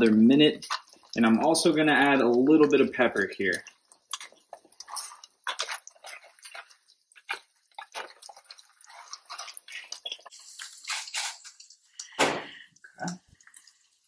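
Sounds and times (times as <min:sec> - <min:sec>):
eggs sizzling in a pan: 0:00.0 - 0:14.0
pepper grinder crackling: 0:07.3 - 0:12.2.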